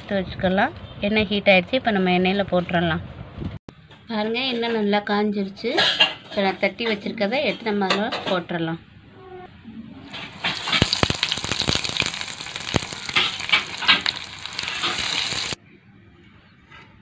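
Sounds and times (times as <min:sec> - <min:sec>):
fritters sizzling in hot oil: 0:10.1 - 0:15.6
sharp crackling pops: 0:10.2 - 0:15.6.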